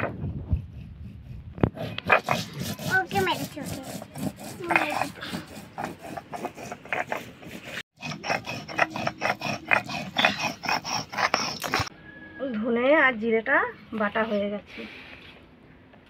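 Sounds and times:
stone grinding on stone: 0.0 - 11.9.

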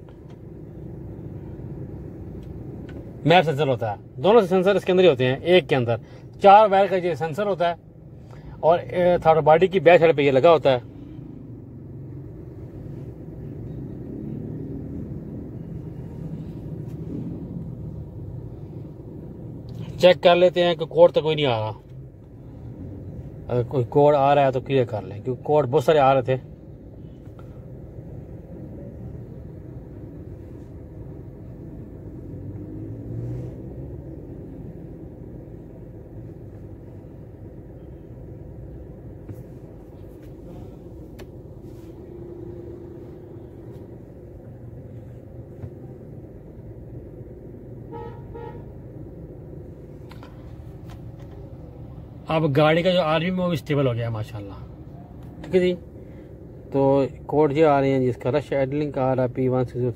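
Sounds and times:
car engine idling: 33.4 - 59.9.

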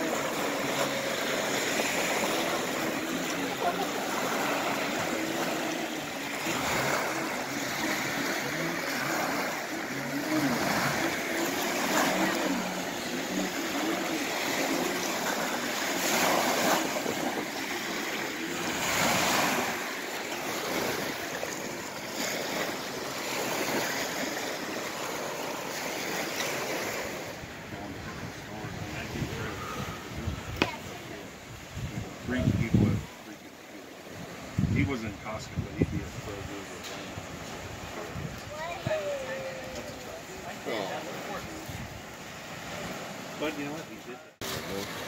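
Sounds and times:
waves washing on pebbly shore: 0.0 - 45.0
wind on microphone: 27.3 - 33.2, 34.1 - 40.2.

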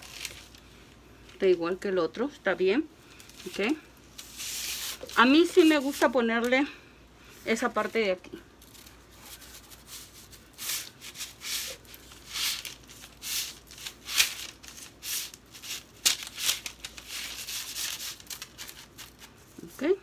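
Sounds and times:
paper rustling: 0.0 - 0.7, 3.2 - 6.2, 8.6 - 19.4.

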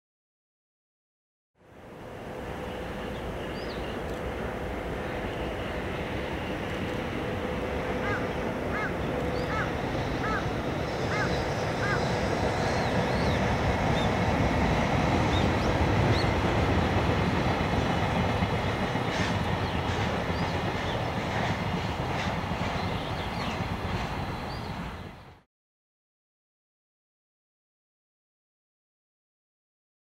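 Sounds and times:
freight train rumbling on bridge: 1.6 - 25.4
bird calling: 8.0 - 14.2.

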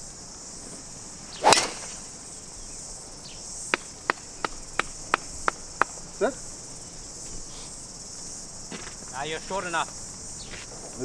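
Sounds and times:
insect drone: 0.0 - 11.0
golf driver striking ball: 1.4 - 2.1.

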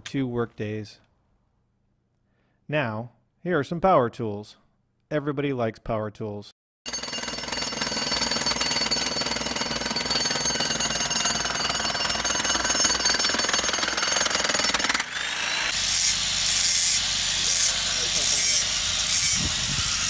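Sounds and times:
pulsing hammering: 6.9 - 19.3
jackhammer hammering rock: 6.9 - 20.0.

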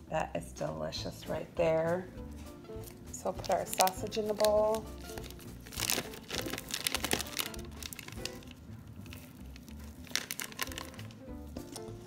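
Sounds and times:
plastic wrapper crinkling: 2.8 - 12.0.

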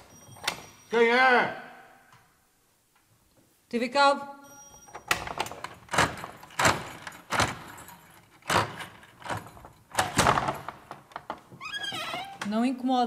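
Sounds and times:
metal door bolts scraping and clacking: 4.9 - 12.3.

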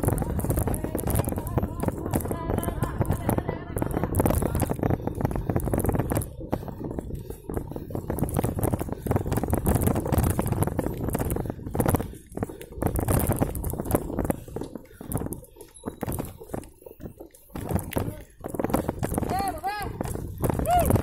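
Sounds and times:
dense rushing noise: 0.0 - 15.4
bike rattling and knocking: 0.0 - 21.0.

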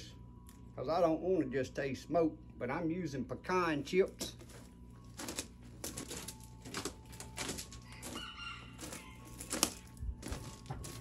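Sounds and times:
clicks and rustles of handling: 4.0 - 8.2
chicken calling: 7.8 - 9.9.

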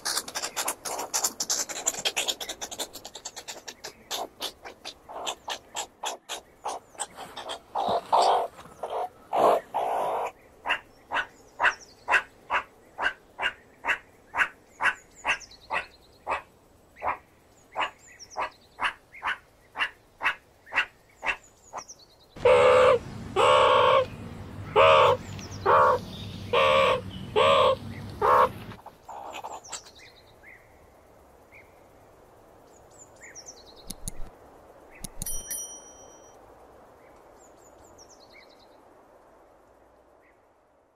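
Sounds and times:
meerkat calling: 0.0 - 16.4, 22.4 - 24.1, 24.7 - 29.8
low hum: 22.4 - 28.8.

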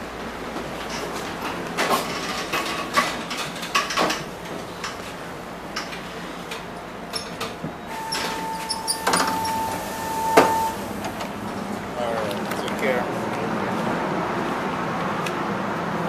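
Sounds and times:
train door warning beep: 7.2 - 11.2.

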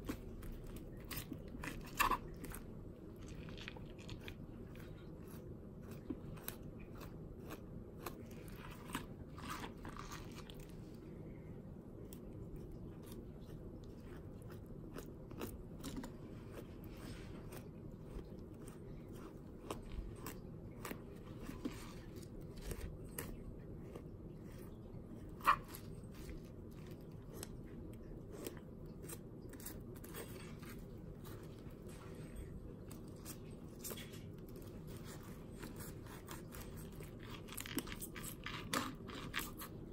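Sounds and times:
knife crunching over fish bones: 0.0 - 10.7, 32.9 - 39.8.

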